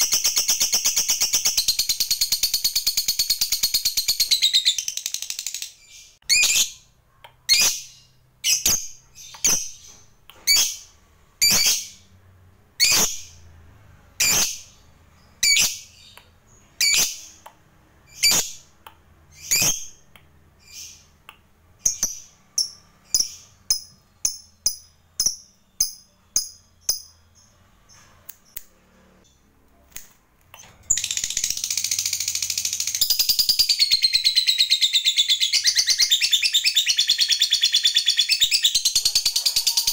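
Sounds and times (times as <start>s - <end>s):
bird high-pitched calls: 30.9s - 39.9s.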